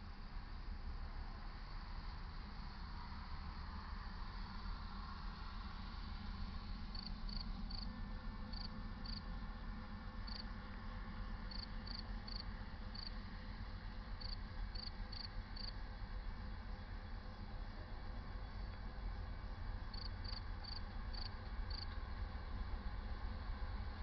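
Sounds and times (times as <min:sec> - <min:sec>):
cricket chirping: 0:06.9 - 0:07.9, 0:08.5 - 0:09.3, 0:10.3 - 0:10.5, 0:11.5 - 0:13.2, 0:14.2 - 0:21.9.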